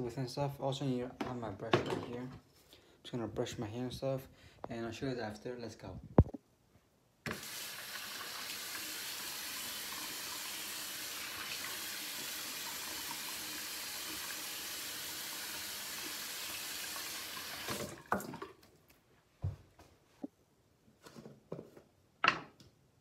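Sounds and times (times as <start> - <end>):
faucet water running into sink: 7.3 - 18.6.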